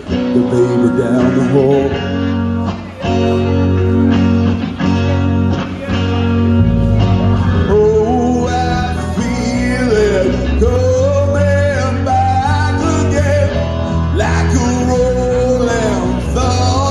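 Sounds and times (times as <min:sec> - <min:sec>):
bass line: 0:00.0 - 0:16.9
rock ballad over a pa: 0:00.0 - 0:16.9
man singing: 0:00.1 - 0:03.5, 0:07.1 - 0:16.9.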